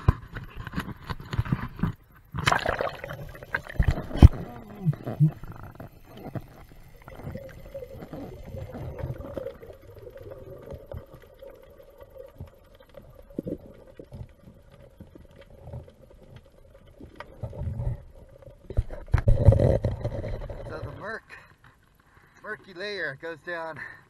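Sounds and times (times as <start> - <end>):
muffled underwater rumble: 3.0 - 21.0.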